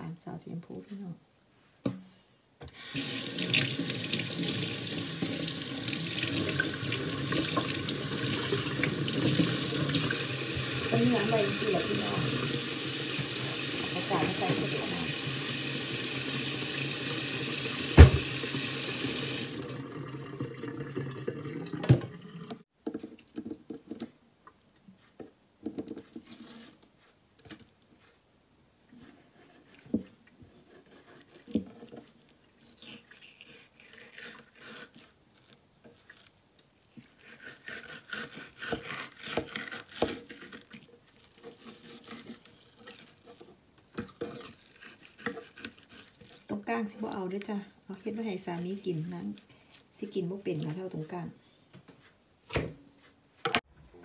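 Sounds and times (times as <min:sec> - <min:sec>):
tap running into steel sink: 0:17.9 - 0:18.4
sharp knock: 0:18.0 - 0:18.3
knife scraping on cutting board: 0:26.1 - 0:26.8, 0:29.0 - 0:32.0, 0:37.0 - 0:46.5.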